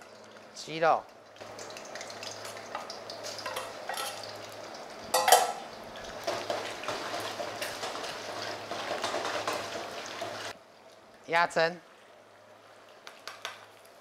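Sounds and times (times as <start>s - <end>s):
chicken sizzling in hot oil: 1.4s - 10.6s.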